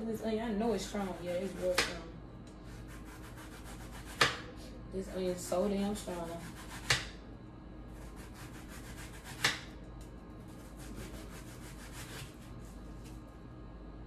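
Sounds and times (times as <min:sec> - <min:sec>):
onion skin rubbing: 0:02.7 - 0:04.3, 0:10.4 - 0:13.2.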